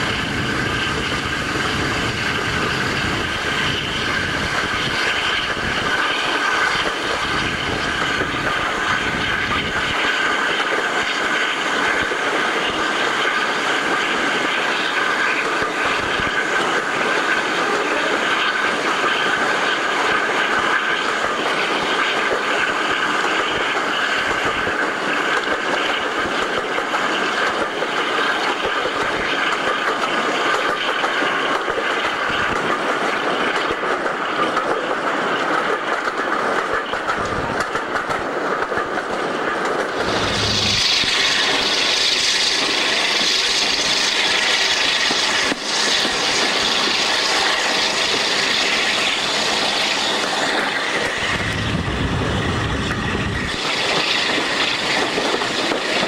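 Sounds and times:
wind rush: 0.0 - 10.4, 39.8 - 42.5, 49.0 - 56.0
hissy rail noise: 0.0 - 56.0
train wheels rumbling on rails: 0.0 - 56.0
wheels clickety-clack: 0.9 - 56.0.

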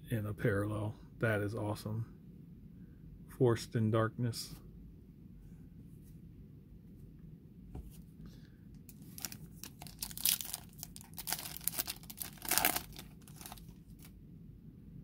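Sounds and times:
foil wrapper tearing: 8.9 - 14.1.

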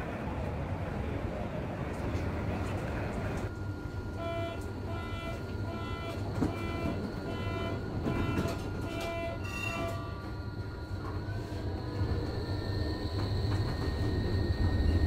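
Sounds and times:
low rumble of tram: 0.0 - 15.0
tram door warning beeps: 3.5 - 15.0.

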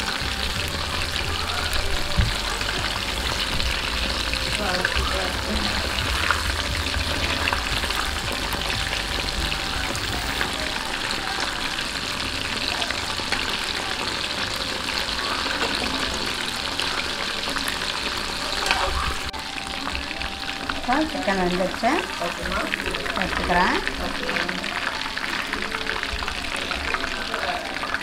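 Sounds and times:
chicken deep-frying in oil: 0.0 - 28.0.

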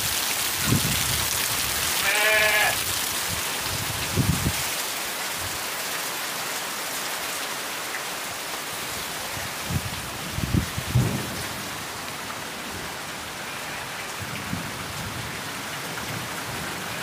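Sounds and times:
heavy rain on roof: 0.0 - 17.0
animal bleating: 2.0 - 2.8.

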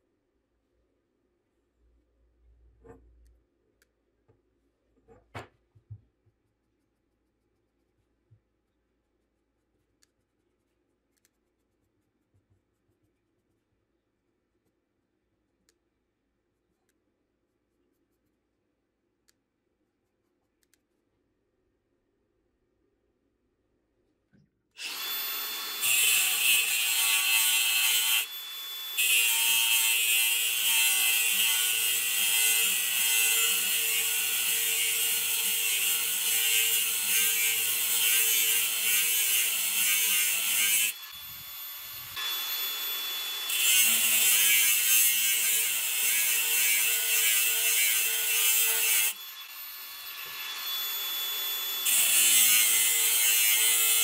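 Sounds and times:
angle grinder cutting steel: 24.8 - 54.0.

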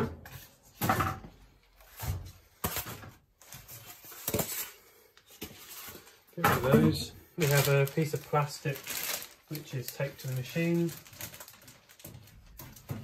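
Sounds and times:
polystyrene scraping on plastic wrap: 5.6 - 12.9.

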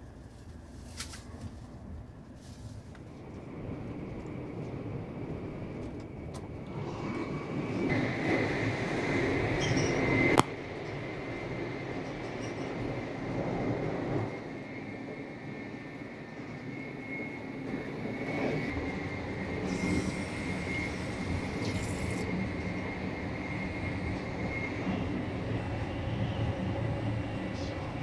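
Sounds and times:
train rumble at speed: 0.0 - 28.0
thin high whine: 16.3 - 28.0.

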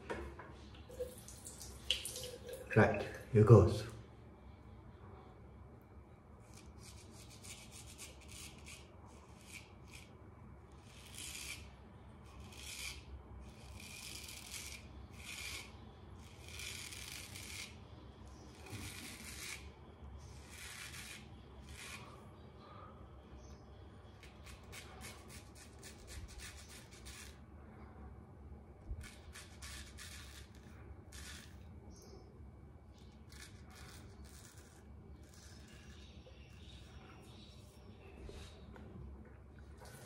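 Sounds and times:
razor scraping stubble: 6.4 - 22.2, 24.1 - 27.4, 29.0 - 31.7, 32.9 - 37.8.

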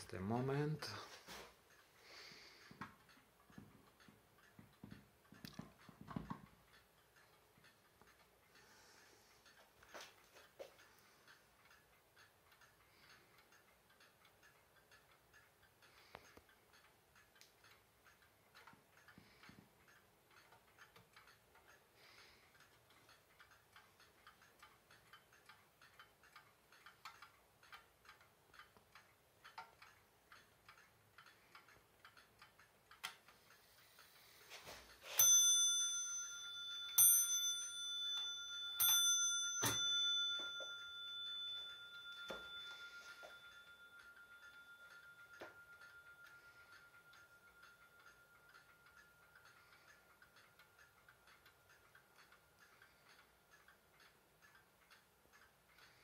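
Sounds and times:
wall clock ticking: 0.0 - 56.0
clock mechanism click: 9.4 - 56.0
clock striking metallic notes: 35.1 - 49.5.

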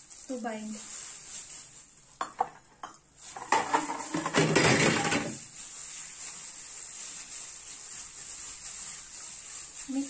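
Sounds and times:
hand mixing meat in a steel bowl: 3.1 - 10.0.

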